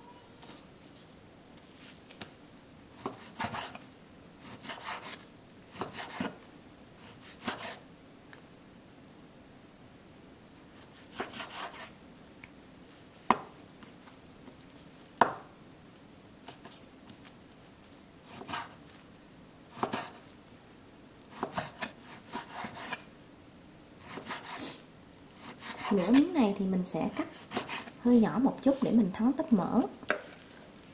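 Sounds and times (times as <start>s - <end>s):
knife sawing through meat: 21.4s - 23.0s, 25.4s - 26.3s, 27.1s - 28.0s.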